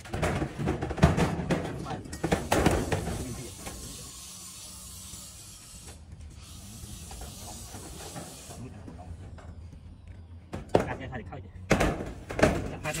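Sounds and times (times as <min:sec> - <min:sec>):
metal knocks and clatter: 0:00.0 - 0:03.3.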